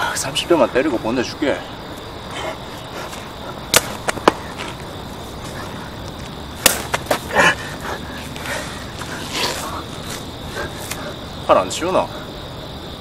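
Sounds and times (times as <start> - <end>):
open-hand slaps: 3.7 - 4.4, 6.6 - 7.2.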